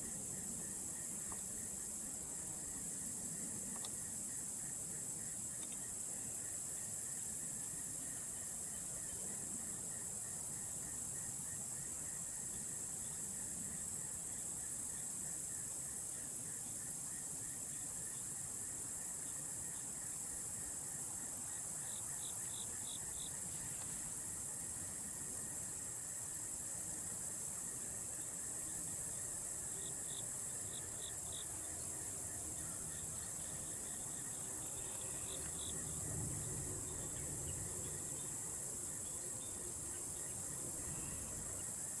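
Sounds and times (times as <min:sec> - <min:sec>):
insect chorus drone: 0:00.0 - 0:42.0.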